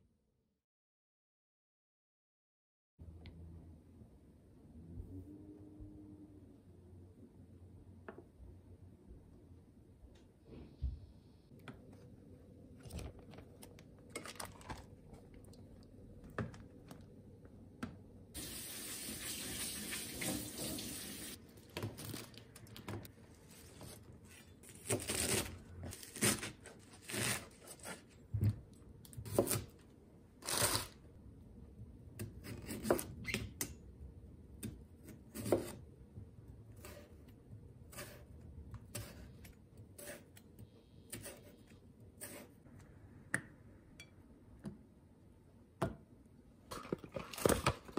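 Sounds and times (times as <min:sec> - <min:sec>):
kitchen tap running: 0:18.4 - 0:21.4.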